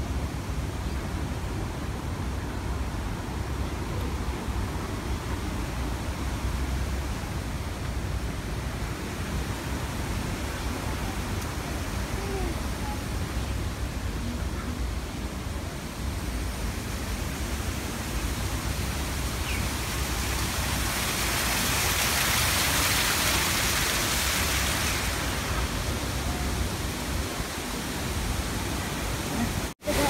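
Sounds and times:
water splashing down rocks: 0:17.4 - 0:30.0.

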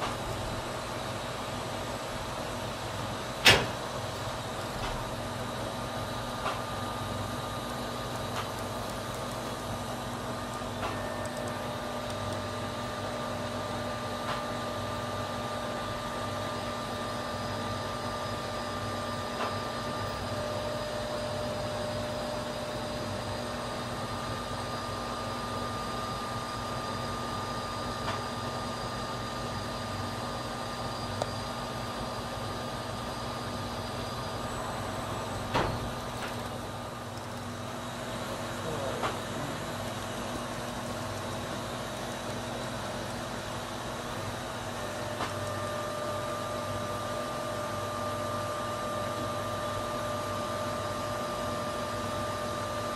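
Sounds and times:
machine running noise: 0:00.0 - 0:52.9
spindle whining tones: 0:30.7 - 0:47.6.

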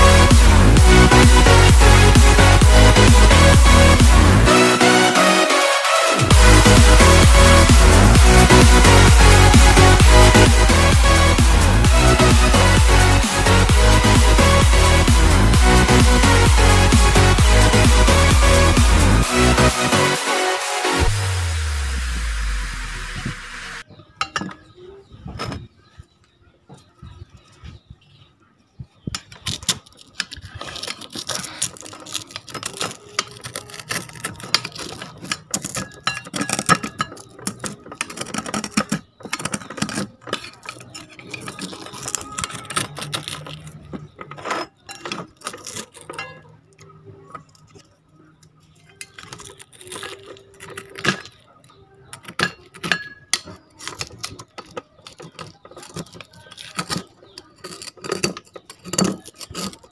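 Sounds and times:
metal spoon scraping metal pan: 0:30.3 - 0:46.5.

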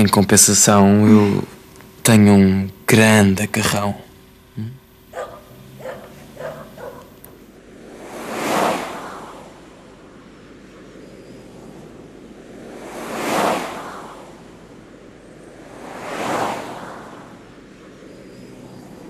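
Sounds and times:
waves breaking: 0:05.8 - 0:19.0.

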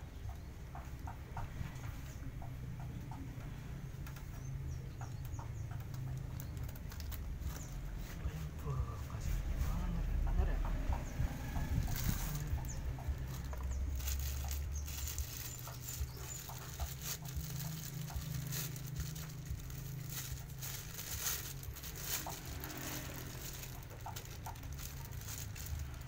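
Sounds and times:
plastic bags rustling and crinkling: 0:05.9 - 0:08.6, 0:11.5 - 0:26.0.

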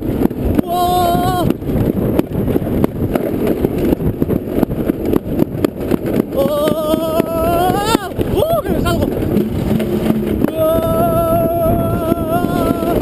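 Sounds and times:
sled rumbling down track: 0:00.0 - 0:13.0
wind on microphone: 0:00.0 - 0:13.0.

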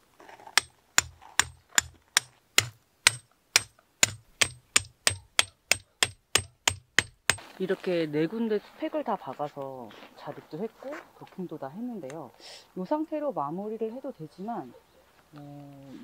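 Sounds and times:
metal tent pegs hammered into gravel: 0:00.0 - 0:07.5.

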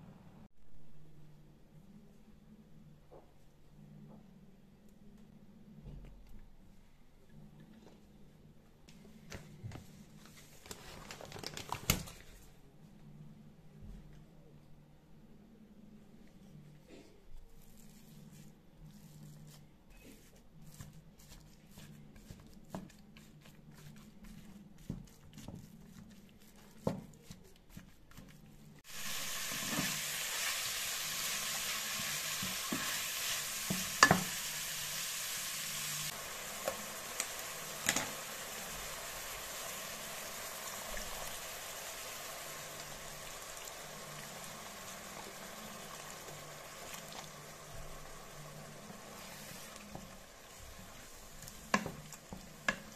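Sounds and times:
wooden spatula scraping a pan: 0:17.6 - 0:34.8, 0:48.8 - 0:52.9
meat sizzling in a frying pan: 0:28.8 - 0:52.9.

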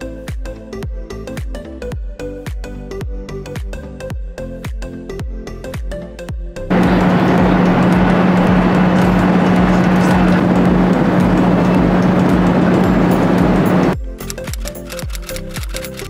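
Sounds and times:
jet engine rush: 0:06.7 - 0:14.0
steady low hum: 0:06.7 - 0:14.0
faint music: 0:06.7 - 0:16.0.

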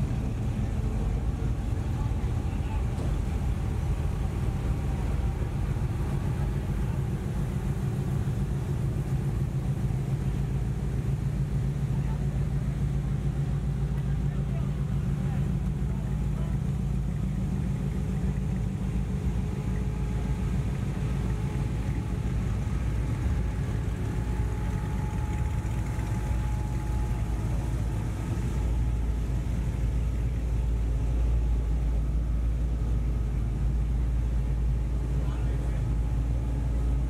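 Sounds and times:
truck engines rumbling: 0:00.0 - 0:37.0.

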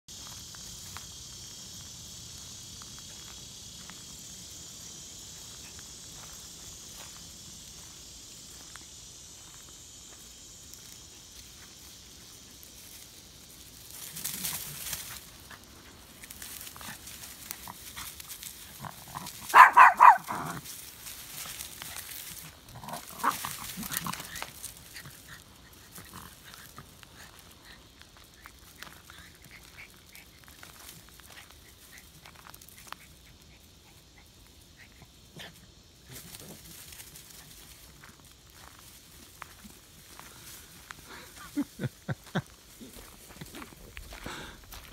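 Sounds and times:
footsteps in dry leaves and gravel: 0:00.1 - 0:33.4, 0:35.8 - 0:44.9
dog barking: 0:19.5 - 0:20.6.

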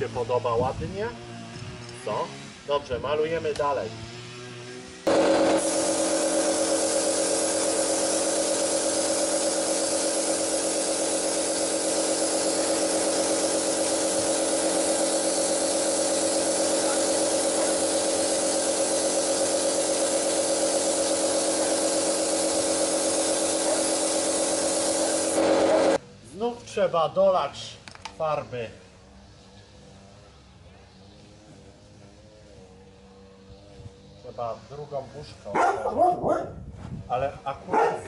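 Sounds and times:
air compressor humming: 0:05.0 - 0:26.0
paint spray gun hissing: 0:05.1 - 0:26.0.

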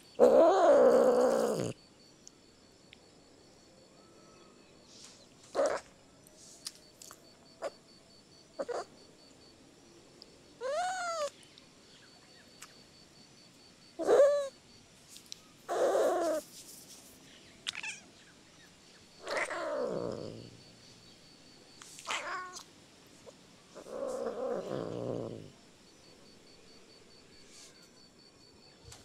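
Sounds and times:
cat meowing: 0:10.6 - 0:11.3, 0:17.7 - 0:18.1, 0:19.2 - 0:20.4, 0:22.0 - 0:22.6.

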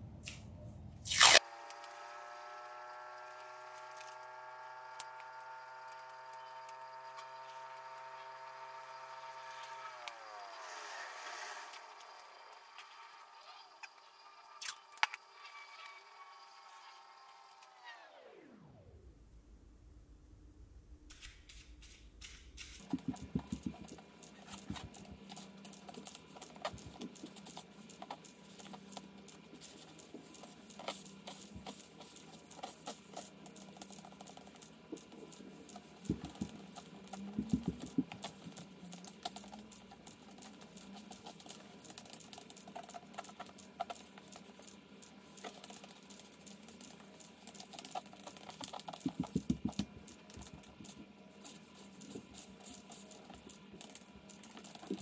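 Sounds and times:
charcoal tapping and scratching on paper: 0:22.8 - 0:55.0.

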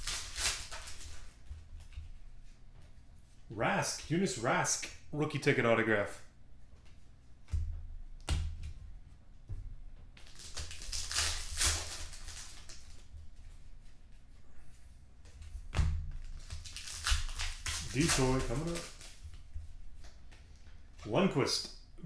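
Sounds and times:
foil wrapper crinkling and tearing: 0:00.0 - 0:01.4, 0:10.2 - 0:13.1, 0:16.2 - 0:19.3.

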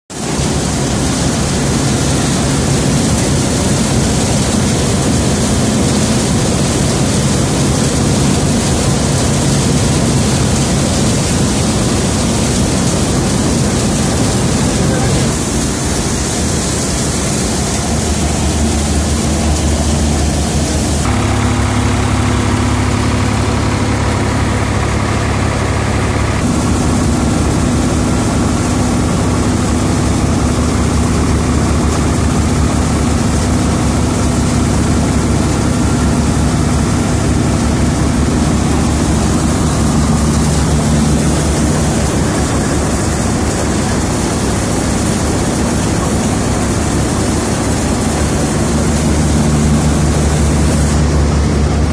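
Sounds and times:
threshing machine droning: 0:00.1 - 0:51.9.

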